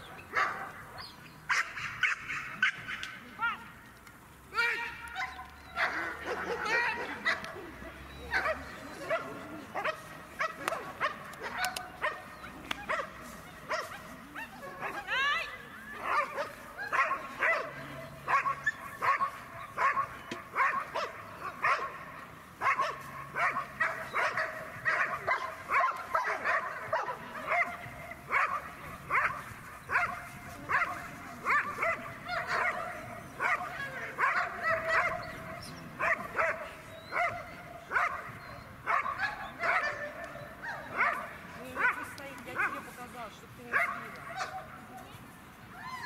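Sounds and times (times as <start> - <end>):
dog barking: 0.3 - 0.8, 8.3 - 15.1, 16.0 - 22.0, 22.6 - 42.8, 43.7 - 44.7.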